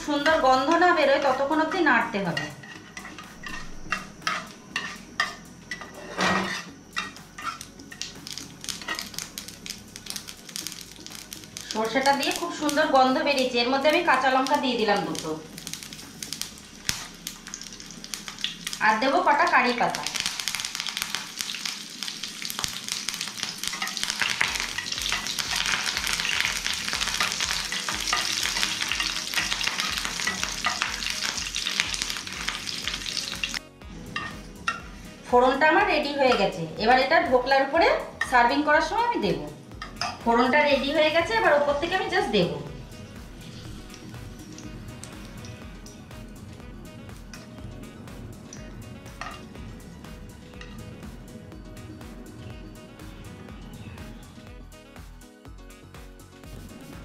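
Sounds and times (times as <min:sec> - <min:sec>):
seeds crackling in hot oil: 0:00.0 - 0:33.6, 0:34.2 - 0:51.3
spatula scraping a pan: 0:02.3 - 0:07.7.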